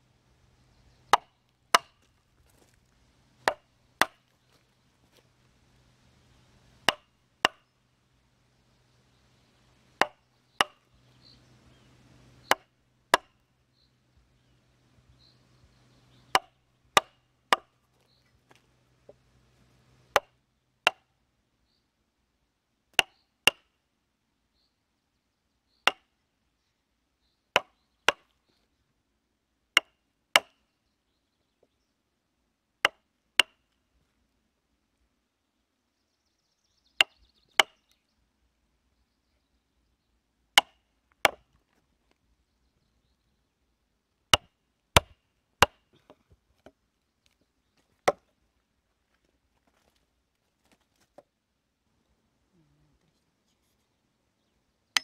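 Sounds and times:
tools striking wood: 1.1 - 2.1, 3.4 - 4.2, 6.8 - 7.6, 10.0 - 10.8, 12.5 - 13.4, 16.3 - 17.7, 44.3 - 45.8.

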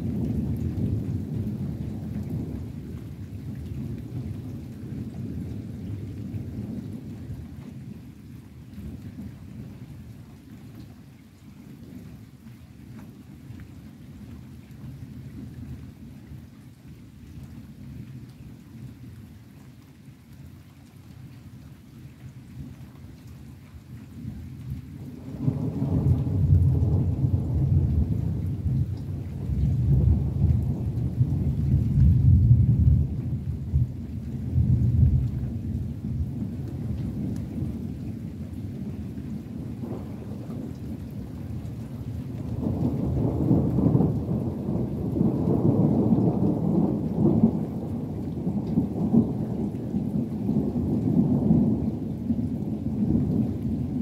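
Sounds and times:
rain falling: 0.0 - 54.0
thunder rolling: 25.2 - 37.8, 41.9 - 51.9.

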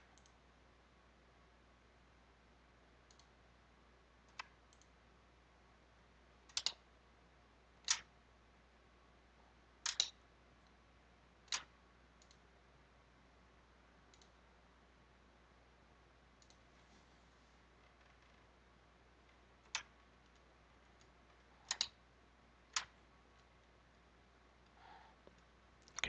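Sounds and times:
faint low hum: 0.0 - 26.0
computer mouse clicks: 0.2 - 0.4, 3.0 - 3.3, 4.3 - 5.0, 6.5 - 6.8, 7.8 - 8.1, 9.8 - 10.8, 11.4 - 12.5, 14.1 - 14.4, 16.4 - 16.6, 19.6 - 22.0, 22.7 - 23.5.

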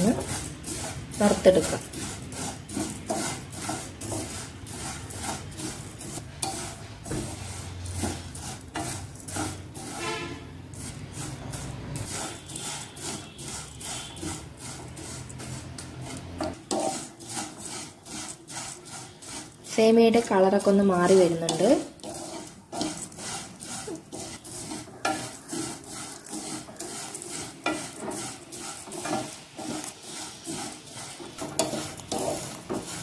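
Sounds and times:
spatula scraping noodles in pan: 0.0 - 33.0.

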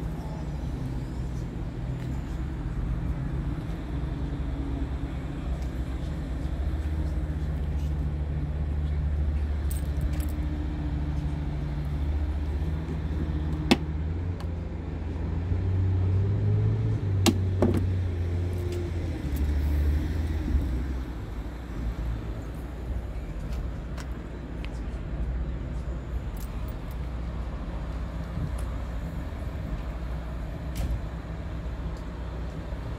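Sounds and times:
diesel truck engine idling: 0.0 - 15.5.

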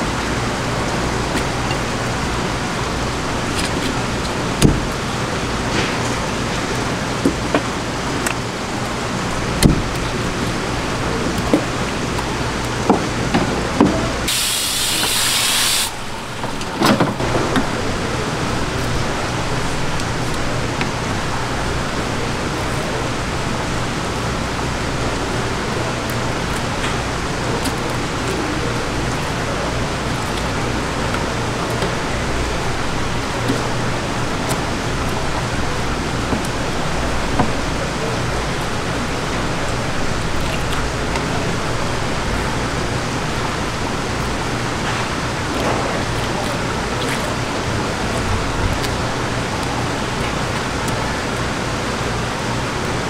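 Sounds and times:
water spray hissing: 14.3 - 16.4.

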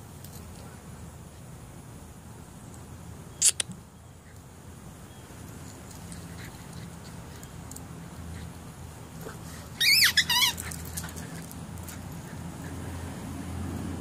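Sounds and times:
squeaky toy ball squeaking: 9.8 - 10.6.

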